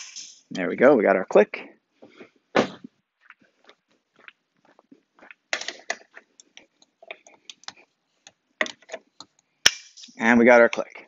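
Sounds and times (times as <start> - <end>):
sharp thump: 2.6 - 2.9.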